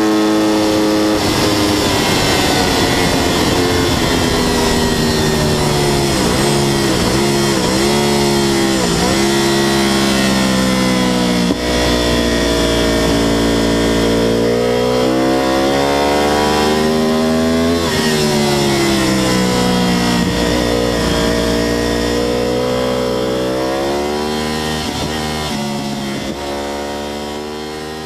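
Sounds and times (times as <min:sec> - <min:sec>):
motorcycle engine revving: 0:00.0 - 0:28.0
wind noise: 0:00.4 - 0:22.8.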